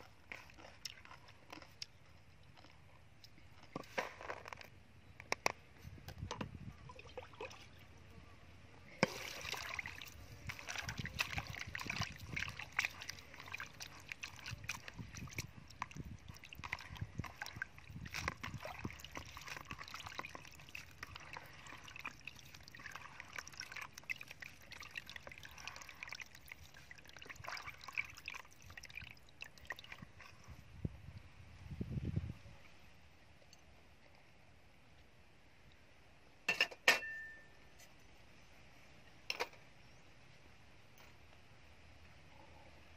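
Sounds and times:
hands splashing in water: 9.0 - 30.0
water pouring into basin: 9.0 - 30.4.

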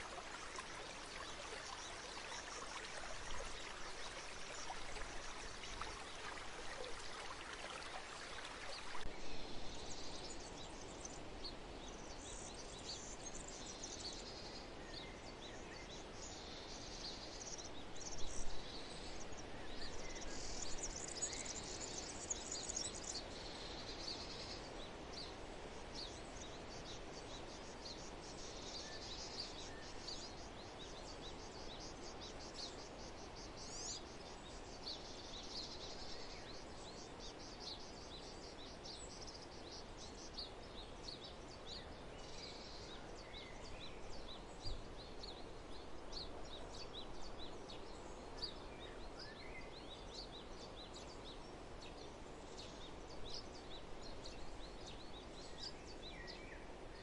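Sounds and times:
birds chirping and twittering: 0.0 - 25.4
steady background hiss: 0.0 - 57.0.

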